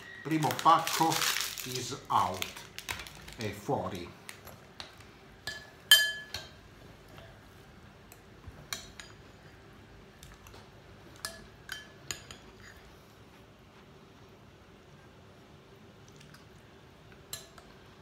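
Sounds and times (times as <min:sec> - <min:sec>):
spoon clinking against ceramic bowl: 0:05.5 - 0:06.6.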